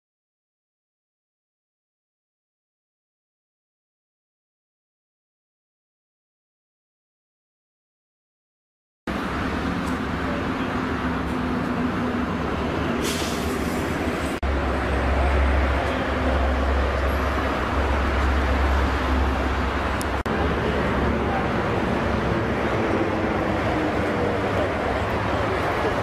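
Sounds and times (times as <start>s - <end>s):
road traffic rumble: 9.1s - 26.0s
short hiss: 13.0s - 14.4s.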